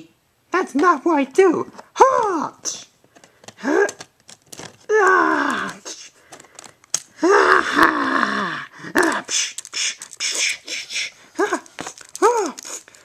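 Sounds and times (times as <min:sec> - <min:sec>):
plastic toy figures clicking: 0:03.1 - 0:07.1, 0:09.0 - 0:10.4, 0:11.5 - 0:13.0
person grunting and groaning: 0:03.6 - 0:04.0, 0:04.9 - 0:06.0, 0:07.1 - 0:12.8.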